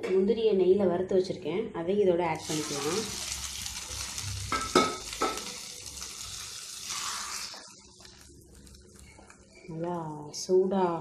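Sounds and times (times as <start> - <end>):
hot ghee sizzling: 2.4 - 9.8.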